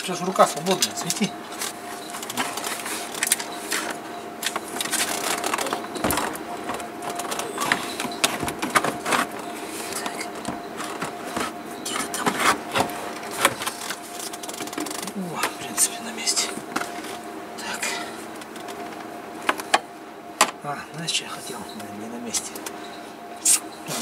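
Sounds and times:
car heater box knocking and rattling: 1.6 - 15.6.

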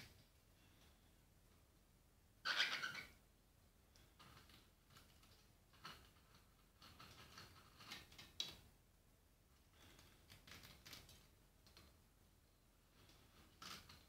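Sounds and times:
bird pecking and crunching food: 4.0 - 8.6, 9.8 - 11.9.

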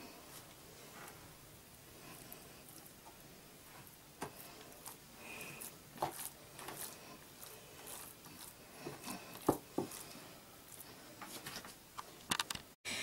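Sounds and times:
hands patting bread dough: 3.7 - 11.6.

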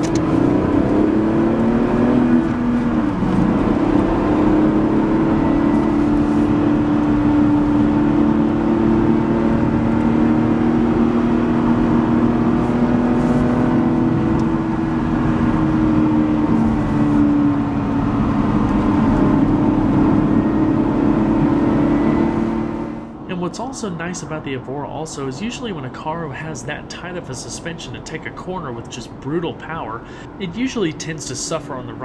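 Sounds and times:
tyre and road rumble: 0.0 - 23.8
car engine pulling: 0.0 - 32.0.

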